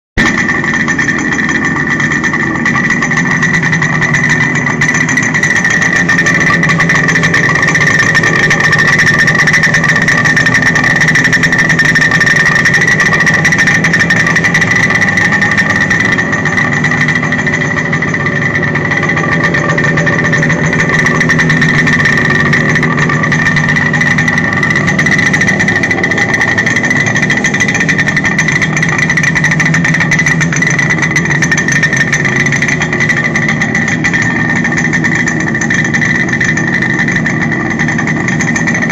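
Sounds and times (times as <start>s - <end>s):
motorcycle engine idling: 0.2s - 38.9s
high-pitched tone: 4.3s - 34.7s.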